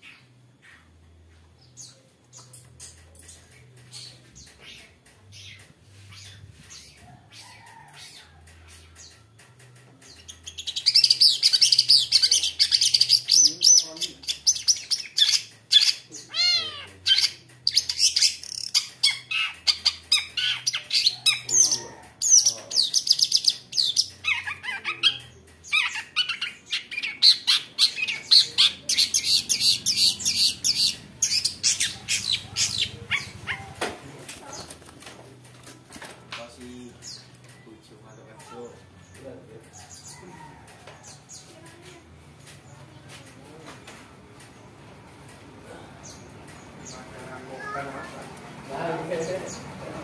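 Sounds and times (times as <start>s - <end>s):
shrike singing chattering notes: 22.2s - 33.7s.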